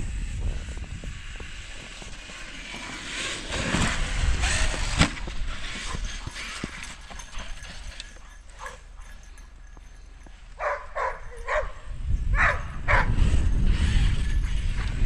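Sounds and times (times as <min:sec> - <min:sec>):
low rumbling noise: 0:00.0 - 0:02.1
dog barking: 0:10.6 - 0:11.8, 0:12.4 - 0:13.1.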